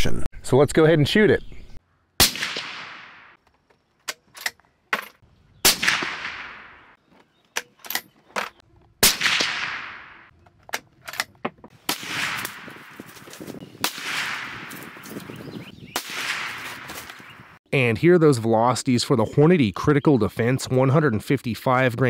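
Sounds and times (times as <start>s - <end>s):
rifle shots with echo: 2.2s - 3.4s, 5.6s - 7.0s, 9.0s - 10.3s, 11.9s - 13.1s, 13.8s - 15.0s, 16.0s - 17.2s.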